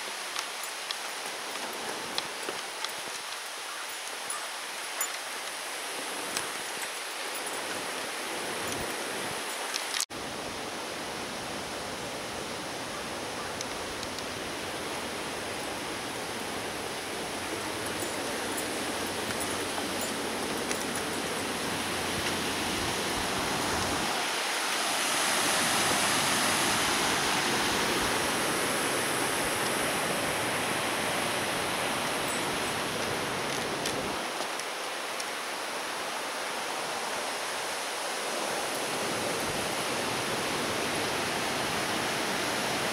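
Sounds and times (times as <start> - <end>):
waterfall rushing: 13.2 - 42.9.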